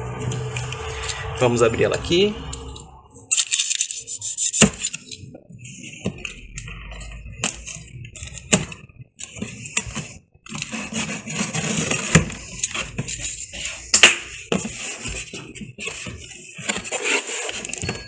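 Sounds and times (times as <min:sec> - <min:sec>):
cardboard flaps scraping and rustling: 0:09.3 - 0:13.8, 0:14.5 - 0:17.8.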